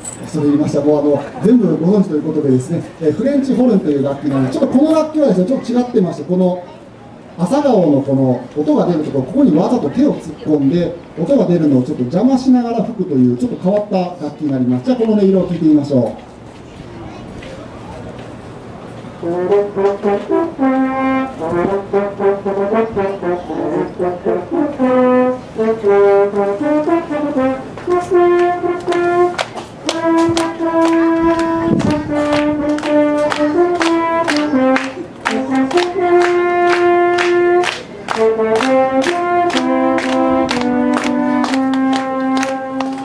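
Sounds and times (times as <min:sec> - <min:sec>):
french horn melody: 0:19.0 - 0:43.0.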